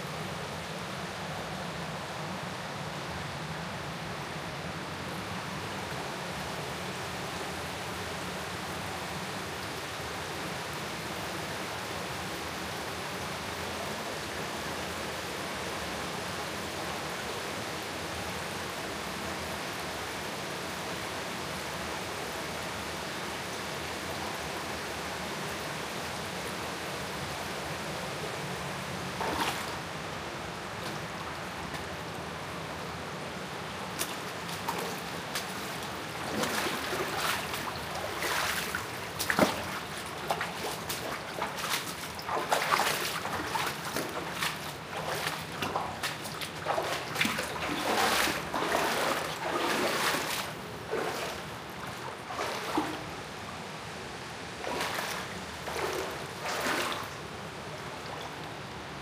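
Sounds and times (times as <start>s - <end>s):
running water rushing: 25.4s - 59.0s
water splashing and sloshing: 28.6s - 59.0s.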